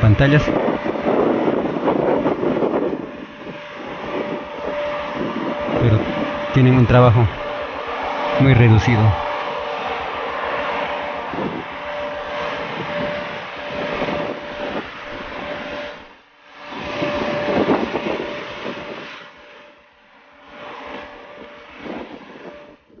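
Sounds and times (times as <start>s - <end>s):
wind buffeting microphone: 0.0s - 19.8s, 20.4s - 23.0s.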